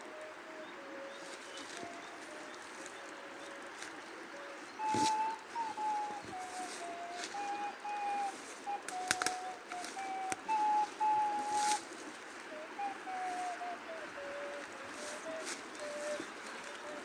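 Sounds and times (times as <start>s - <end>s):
person whistling a slow tune: 4.8s - 11.8s
sharp crackles: 8.7s - 10.6s.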